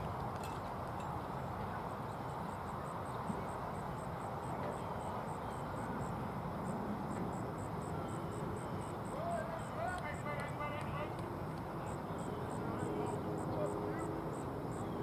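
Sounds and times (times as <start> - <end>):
faint high chirping pulses: 1.0 - 10.8.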